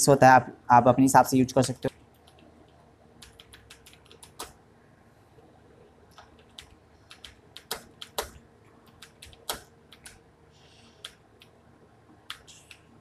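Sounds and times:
keyboard typing: 0:01.7 - 0:04.6, 0:06.1 - 0:10.2, 0:11.0 - 0:11.6, 0:12.2 - 0:13.0.

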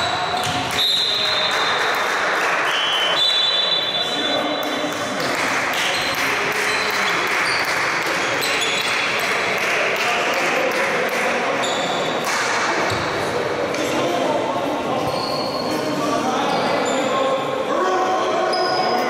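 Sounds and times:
indistinct voices in sports hall: 0:00.0 - 0:19.0
basketball shoes squeaking: 0:15.0 - 0:15.7.

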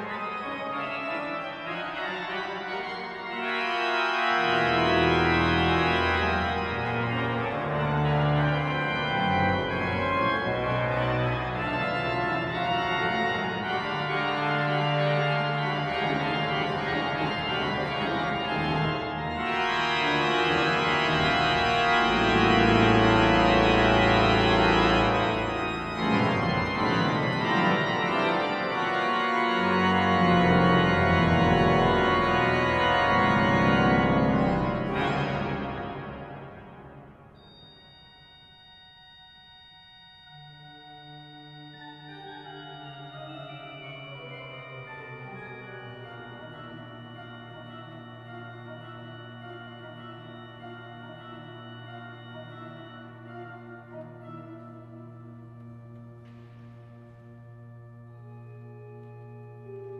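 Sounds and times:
organ playing sustained chords: 0:00.0 - 0:59.9
deep organ bass notes: 0:03.9 - 0:36.4.

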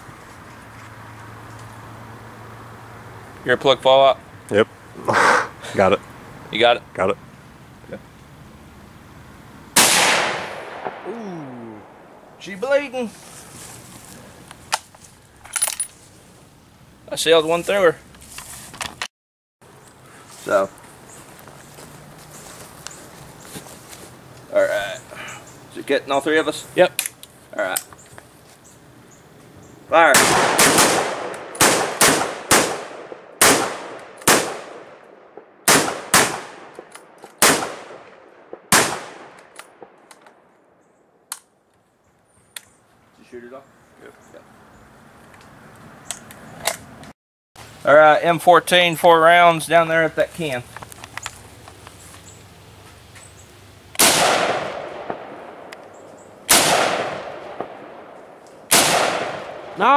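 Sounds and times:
rifle shots echoing: 0:09.8 - 0:11.1, 0:30.0 - 0:40.1, 0:54.0 - 0:55.7, 0:56.5 - 0:59.9.

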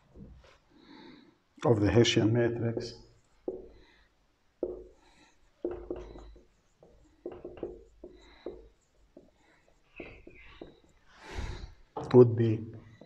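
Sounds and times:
marker squeaking on whiteboard: 0:04.6 - 0:11.8.

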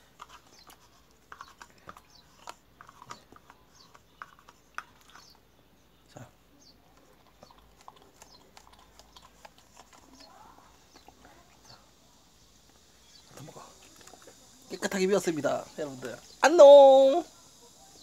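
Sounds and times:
dog licking: 0:07.0 - 0:11.8, 0:13.4 - 0:14.6.

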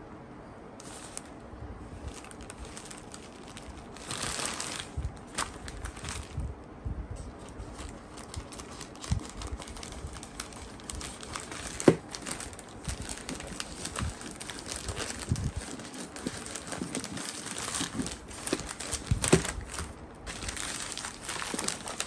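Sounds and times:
plastic pouch crinkling: 0:02.0 - 0:06.5, 0:07.3 - 0:22.0
scissors cutting plastic: 0:07.9 - 0:22.0.

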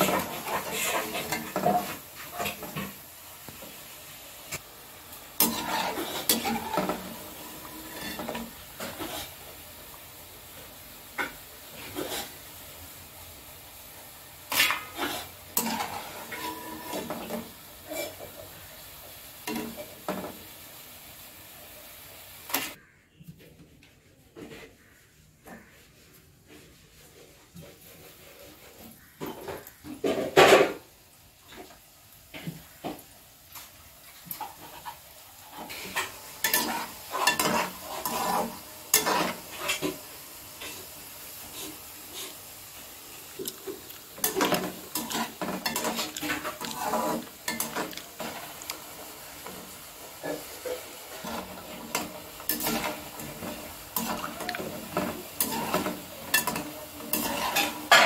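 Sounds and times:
spoon scraping and knocking pan: 0:00.0 - 0:03.8, 0:05.4 - 0:09.4, 0:14.5 - 0:18.5, 0:19.4 - 0:20.5, 0:32.3 - 0:40.8, 0:43.4 - 0:58.0
food sizzling in hot oil: 0:00.0 - 0:22.8, 0:27.6 - 0:58.0.

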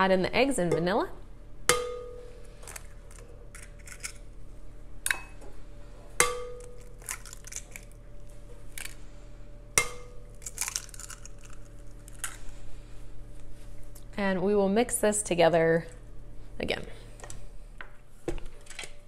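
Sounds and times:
glass bowl ringing: 0:01.7 - 0:02.4, 0:06.2 - 0:07.0, 0:09.8 - 0:10.4
eggshells crackling: 0:06.7 - 0:08.0, 0:10.3 - 0:12.5.

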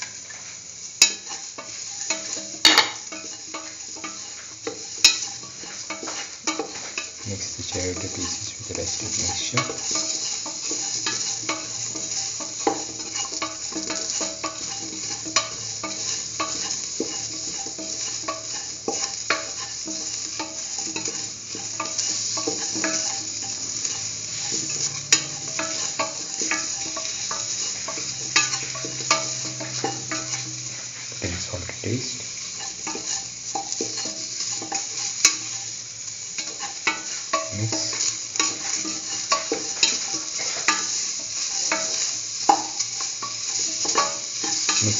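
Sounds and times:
vegetables sizzling in oil: 0:00.0 - 0:44.9
utensil scraping and clicking on pan: 0:01.0 - 0:31.2, 0:32.2 - 0:44.9.

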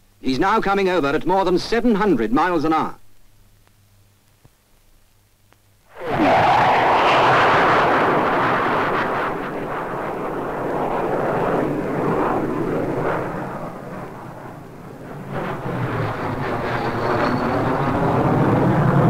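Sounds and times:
jet fighter passing low: 0:05.9 - 0:19.0.

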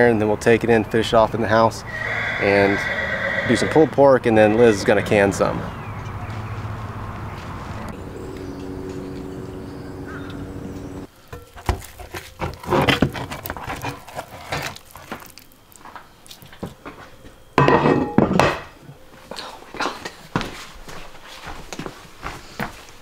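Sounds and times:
steady low hum: 0:04.1 - 0:11.1.

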